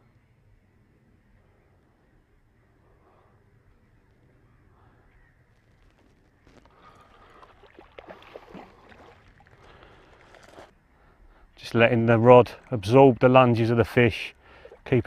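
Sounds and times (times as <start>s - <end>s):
fish splashing at surface: 6.9s - 10.7s.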